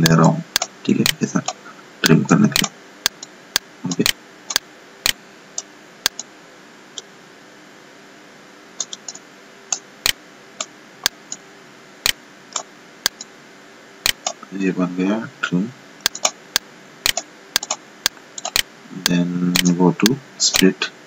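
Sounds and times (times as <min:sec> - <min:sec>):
computer mouse clicking: 0:00.0 - 0:03.3, 0:03.9 - 0:06.3, 0:08.8 - 0:09.8, 0:12.1 - 0:13.3, 0:14.0 - 0:14.4, 0:16.0 - 0:16.4, 0:17.0 - 0:18.7
faint background hum: 0:00.0 - 0:21.0.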